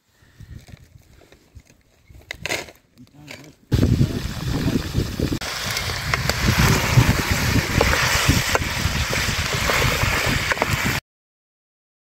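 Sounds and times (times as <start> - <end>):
wind buffeting microphone: 3.7 - 11.0.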